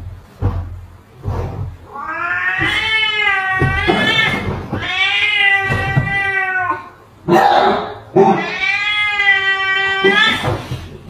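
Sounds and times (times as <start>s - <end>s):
cat yowling: 1.9s - 10.7s.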